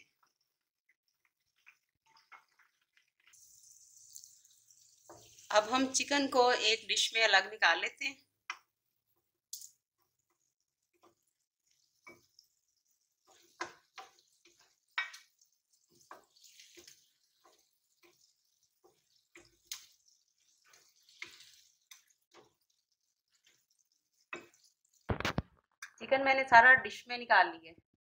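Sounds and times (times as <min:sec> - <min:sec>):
hot oil crackling: 0:00.0 - 0:26.0
spatula tapping pan: 0:09.5 - 0:25.4.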